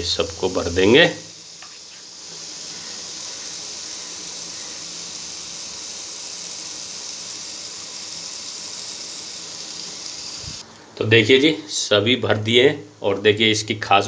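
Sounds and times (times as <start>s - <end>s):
food sizzling in oil: 0.0s - 10.6s.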